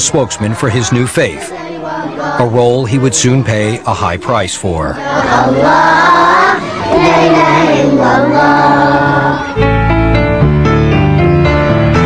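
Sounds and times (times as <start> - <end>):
choir singing: 0.0 - 9.7
song with piano accompaniment: 8.6 - 12.0.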